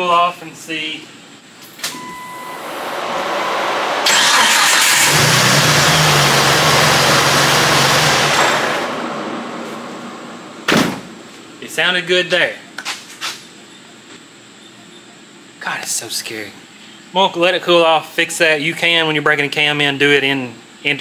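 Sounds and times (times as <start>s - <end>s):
loud rush of air: 2.4s - 11.3s
engine running at high speed: 2.5s - 10.7s.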